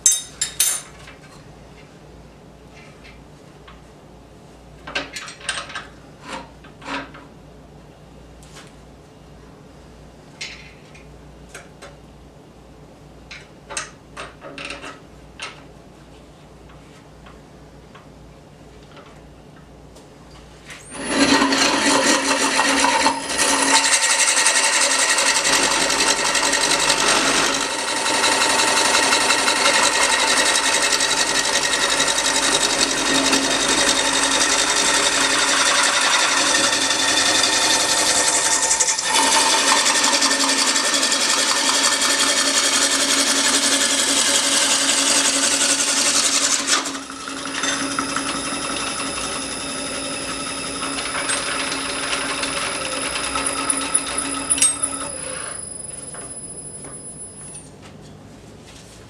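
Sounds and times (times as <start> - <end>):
lathe tool scraping wood: 20.9 - 56.4.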